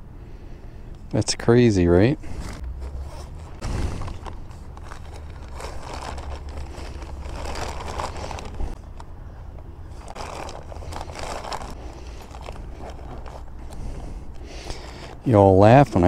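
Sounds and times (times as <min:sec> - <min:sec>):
steady low rumble: 0:00.0 - 0:16.0
plastic bag rustling and crinkling: 0:02.2 - 0:08.9, 0:09.9 - 0:15.9
zipper being pulled: 0:02.3 - 0:08.6.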